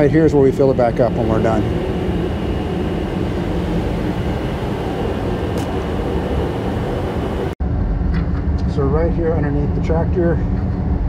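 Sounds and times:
diesel tractor engine idling: 0.0 - 7.6.

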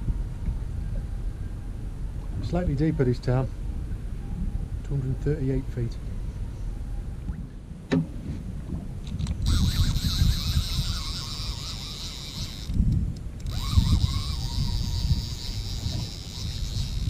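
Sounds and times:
wind rumbling on microphone: 0.0 - 17.0
fishing reel spool whirring: 9.2 - 17.0.

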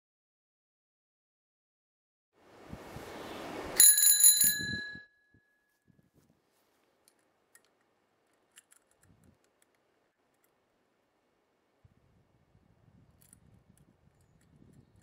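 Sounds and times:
bicycle bell ringing: 3.8 - 5.6
faint small clicks: 6.9 - 10.6, 13.1 - 15.0.

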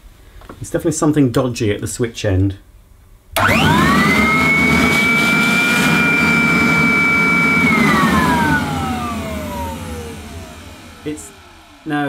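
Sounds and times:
vacuum cleaner motor screaming: 3.4 - 12.0.

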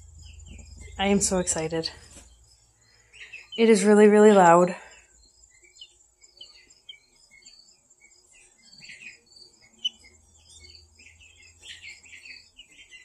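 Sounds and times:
young guinea fowl chirping: 0.0 - 13.0
chick peeping in egg: 5.2 - 13.0.

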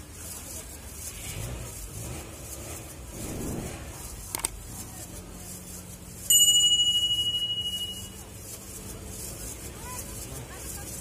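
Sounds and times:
bright bell ding: 6.3 - 8.2.

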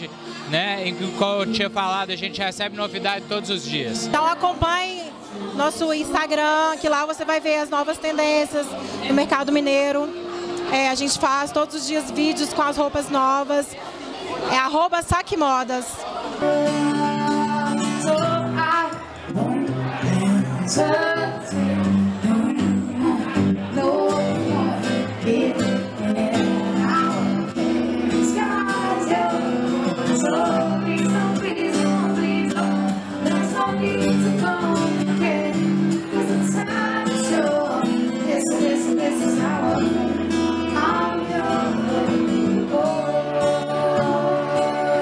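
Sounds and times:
acoustic guitar chords: 0.0 - 6.2, 8.1 - 13.3, 16.0 - 45.0
woman singing: 16.4 - 45.0.

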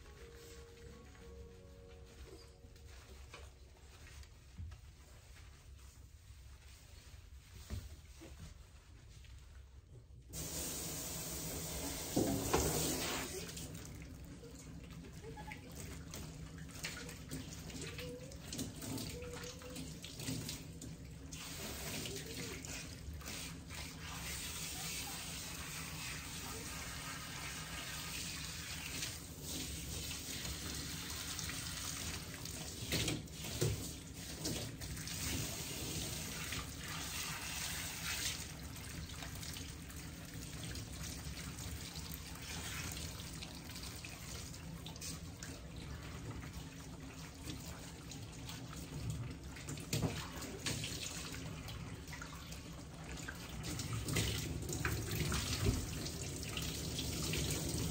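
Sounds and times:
water from hose splashing into tub: 10.3 - 57.9.

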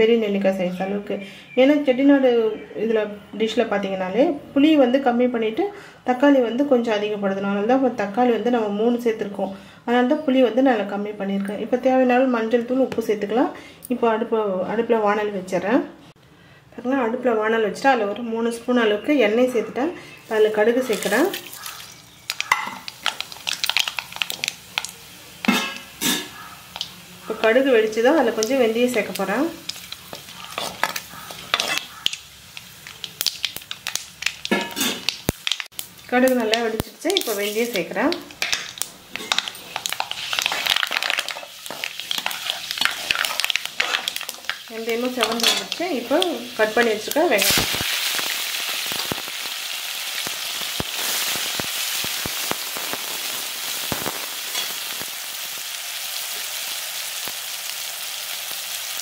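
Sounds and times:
seeds popping in hot oil: 20.3 - 59.0
spoon stirring in pan: 20.8 - 27.5, 28.3 - 35.6, 36.5 - 47.5.

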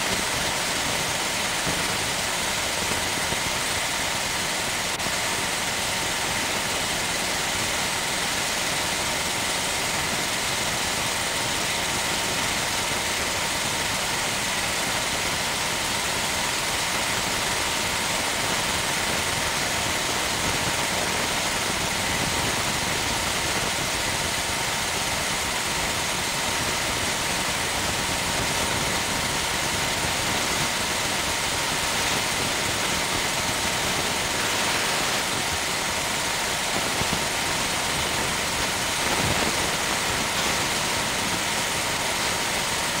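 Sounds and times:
machine running with hiss and hum: 0.0 - 43.0.

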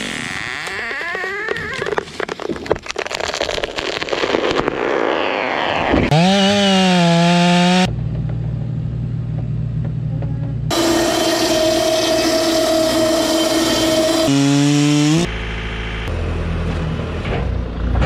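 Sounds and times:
tree trunk cracking and splintering: 1.6 - 4.7
chainsaw revving: 6.1 - 7.9, 10.7 - 15.3
low engine drone: 7.2 - 18.0.

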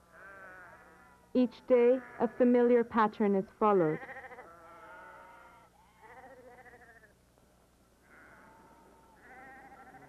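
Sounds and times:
sheep bleating: 0.1 - 2.5, 3.8 - 7.1, 8.0 - 10.0.

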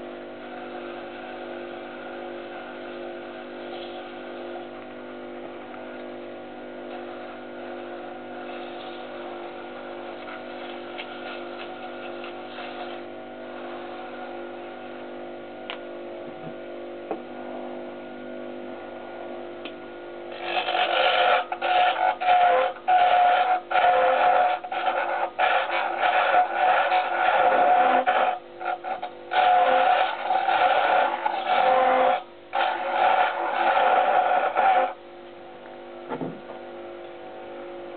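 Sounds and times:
wood lathe humming: 6.9 - 15.0, 20.3 - 35.0
sandpaper sanding spinning wood: 20.3 - 35.0.

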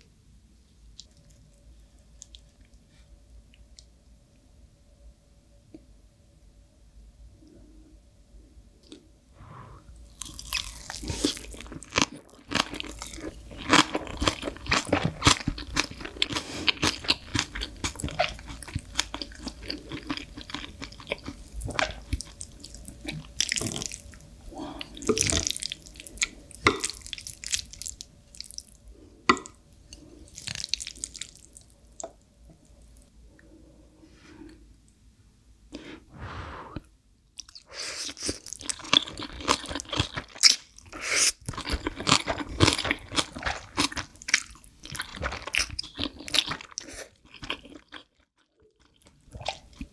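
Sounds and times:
chewing crunchy food: 10.1 - 33.1, 37.4 - 49.9.

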